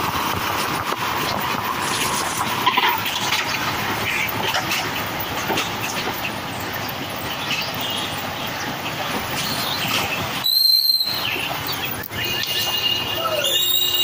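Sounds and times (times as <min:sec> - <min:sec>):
wind and road noise: 0:00.0 - 0:14.0.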